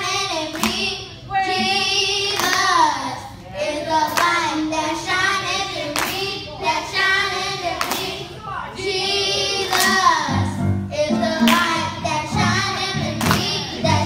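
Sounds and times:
children's choir singing: 0.0 - 14.0
sharp claps: 0.5 - 0.9, 6.0 - 6.3, 7.8 - 8.2.

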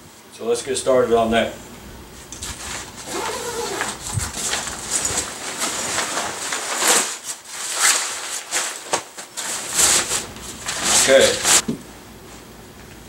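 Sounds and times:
nylon fabric rustling: 2.2 - 11.6.

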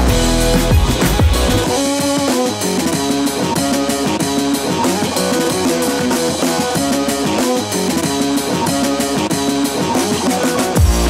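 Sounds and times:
drums: 0.0 - 11.0
guitar: 0.0 - 11.0.

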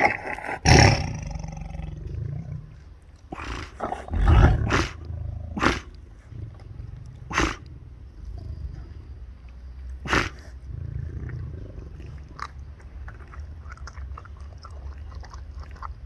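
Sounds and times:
tiger roaring and snarling: 0.0 - 8.5, 10.0 - 13.3.

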